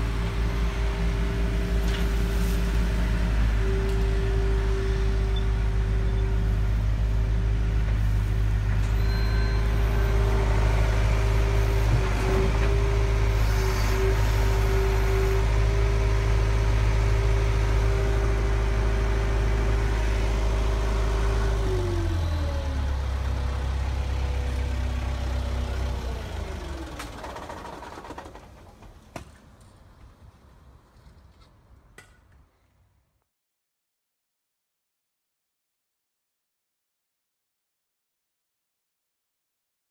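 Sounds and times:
model excavator motor whining: 0:08.8 - 0:16.1.

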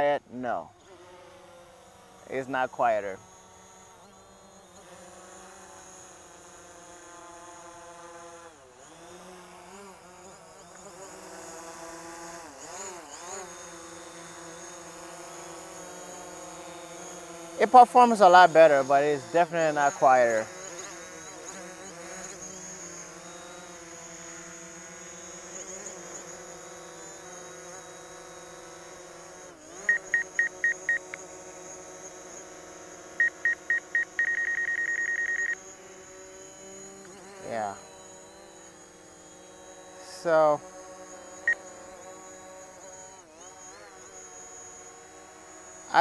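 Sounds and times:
drone buzzing hum: 0:00.0 - 0:46.0
short electronic beeps: 0:29.9 - 0:31.2, 0:33.2 - 0:35.6.

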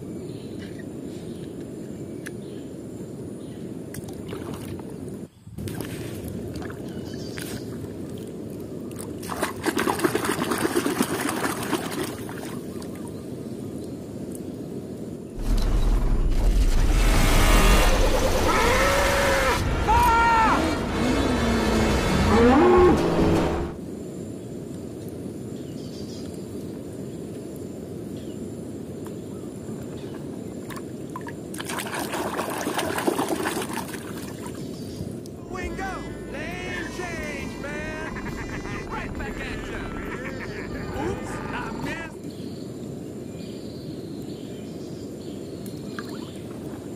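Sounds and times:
water sloshing in a plastic tub: 0:09.2 - 0:12.6, 0:30.7 - 0:34.6
low rushing noise: 0:35.4 - 0:42.2.

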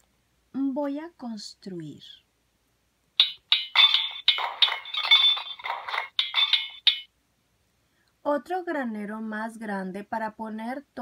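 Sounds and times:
metallic hammer strikes from speaker: 0:03.2 - 0:07.1.

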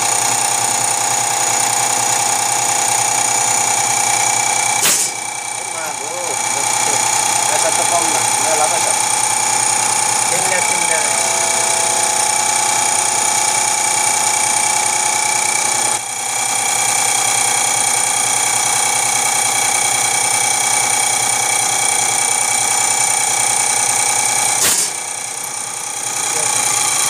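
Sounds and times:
machine whine: 0:00.0 - 0:27.0
sharp click: 0:04.8 - 0:05.2, 0:24.6 - 0:25.0.

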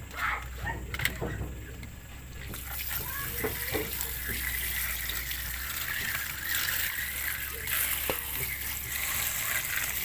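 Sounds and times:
tap water spraying into colander: 0:02.5 - 0:10.0.

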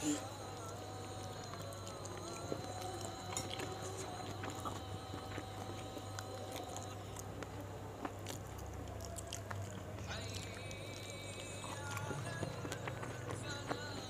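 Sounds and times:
person chewing: 0:00.0 - 0:14.0
steady low hum: 0:00.0 - 0:14.0.

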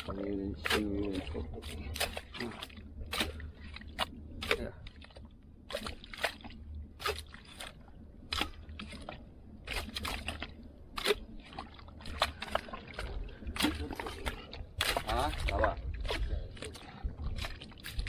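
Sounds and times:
hoe chopping into wet mud: 0:03.1 - 0:03.4.

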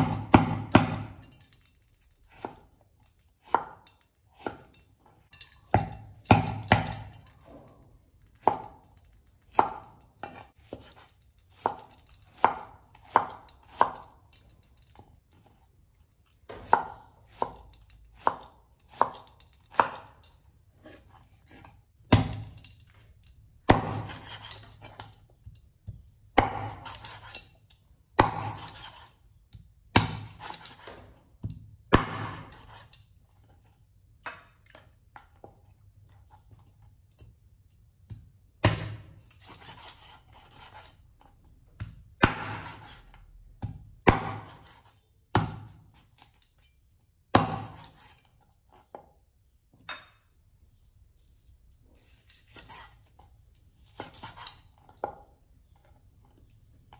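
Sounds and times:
cleaver chopping on wooden board: 0:00.0 - 0:01.2, 0:05.8 - 0:07.2, 0:20.8 - 0:22.6, 0:23.6 - 0:25.0, 0:26.4 - 0:27.3, 0:28.2 - 0:28.8, 0:29.9 - 0:32.7, 0:38.1 - 0:40.9, 0:41.8 - 0:43.0, 0:43.6 - 0:45.8, 0:47.3 - 0:48.1
rasping cleaver strokes: 0:20.8 - 0:25.2.

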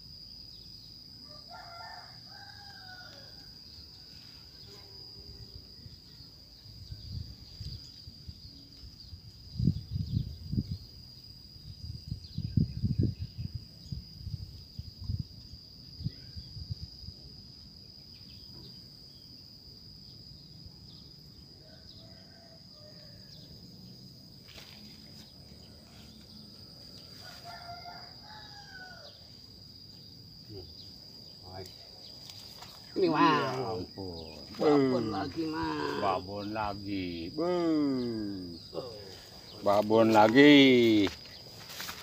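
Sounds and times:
high insect drone: 0:00.0 - 0:42.0
gusty wind rumbles on microphone: 0:09.4 - 0:11.0, 0:11.7 - 0:17.2.

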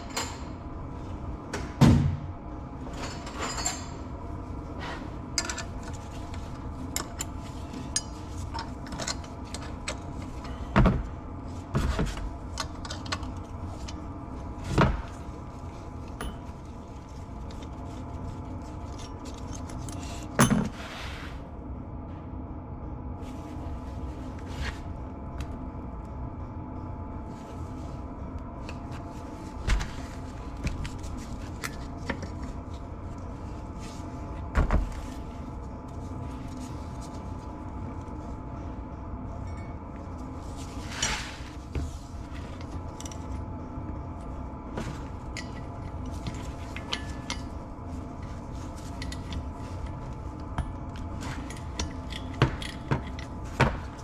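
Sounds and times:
steady hum with held tones: 0:00.0 - 0:54.0
metal parts knocking and clinking: 0:03.0 - 0:04.1, 0:05.4 - 0:10.9, 0:45.0 - 0:54.0.

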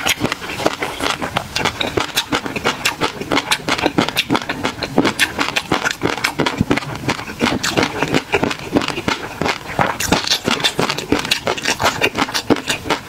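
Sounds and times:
chewing fish roe: 0:00.0 - 0:13.0.

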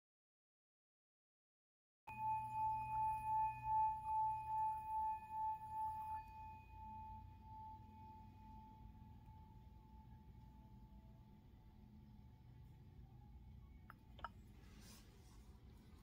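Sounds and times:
singing bowl ringing: 0:02.1 - 0:12.1.

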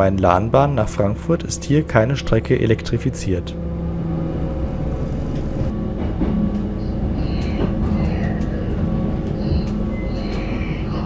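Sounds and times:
diesel engine drone: 0:00.0 - 0:11.0
train wheels on rails: 0:04.4 - 0:11.0.

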